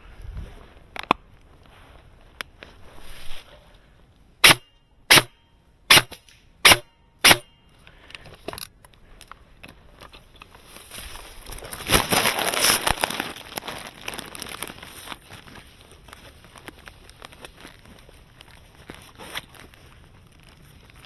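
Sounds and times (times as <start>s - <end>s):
airsoft gun shots: 4.4s - 7.5s.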